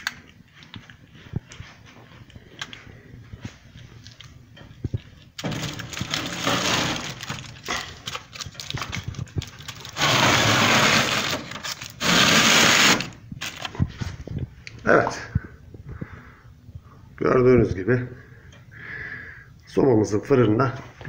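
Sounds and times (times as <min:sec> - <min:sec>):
aluminium foil crinkling: 0:05.0 - 0:14.0.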